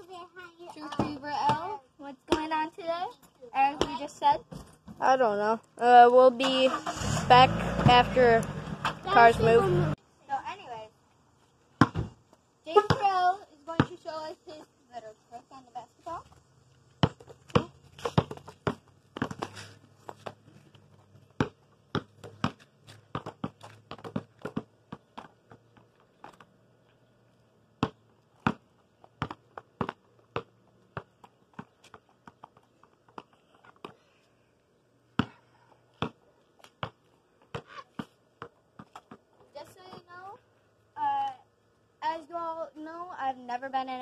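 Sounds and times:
basketball bouncing on concrete: 0:00.7 - 0:02.8, 0:03.6 - 0:05.0, 0:11.8 - 0:14.2, 0:16.2 - 0:26.6, 0:27.8 - 0:34.0, 0:35.1 - 0:40.1.

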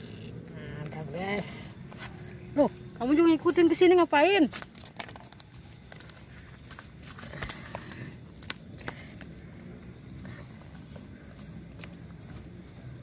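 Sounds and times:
faint insect buzz: 0:00.0 - 0:04.6, 0:05.5 - 0:13.0
rustling and small clicks: 0:04.5 - 0:09.3.

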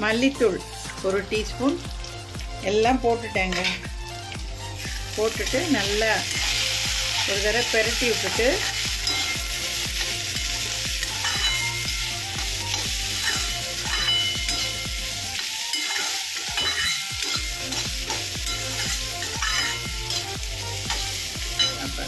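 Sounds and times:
frying sizzle in oil: 0:00.0 - 0:22.0
metal spatula scraping pan: 0:11.0 - 0:21.9.

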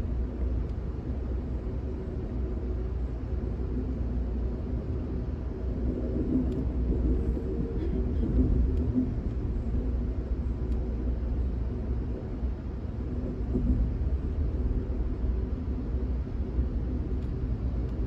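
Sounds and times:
train rumbling on rails: 0:00.0 - 0:18.0
faint ticks: 0:08.7 - 0:09.4, 0:10.6 - 0:10.9, 0:17.1 - 0:18.0.

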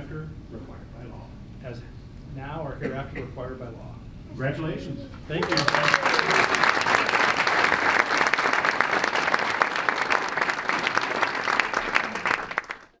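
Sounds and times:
crowd applauding: 0:05.4 - 0:13.0.

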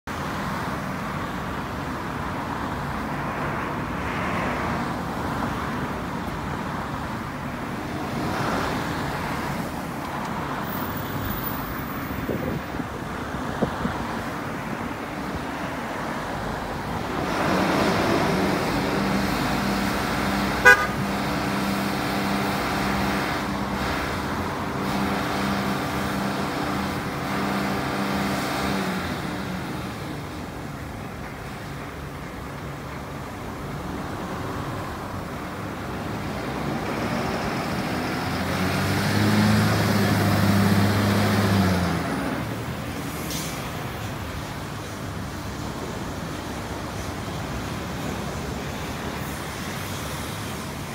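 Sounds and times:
road traffic passing: 0:00.0 - 0:50.9
fire engine diesel engine drone: 0:16.2 - 0:50.9
short sharp horn toot: 0:20.6 - 0:21.0.

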